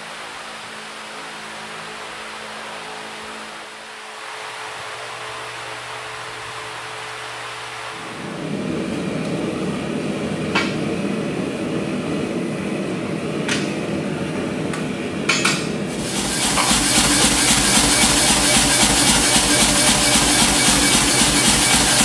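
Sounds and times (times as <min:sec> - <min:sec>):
gas burner rushing: 0:07.4 - 0:22.0.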